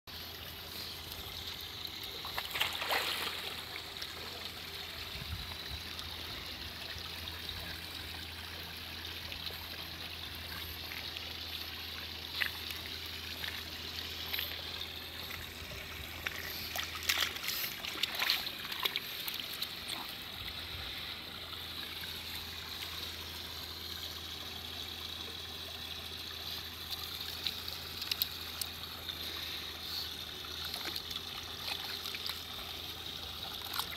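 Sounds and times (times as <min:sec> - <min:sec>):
water lapping and trickling: 0:00.1 - 0:33.9
dog paddling splashes: 0:02.2 - 0:04.5, 0:12.3 - 0:20.3.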